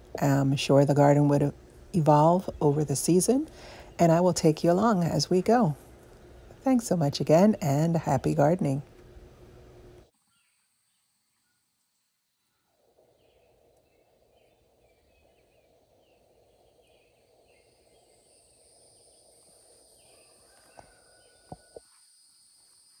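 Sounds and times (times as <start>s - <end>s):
steady high hum: 0.0s - 10.1s
distant bird chirps: 10.2s - 23.0s.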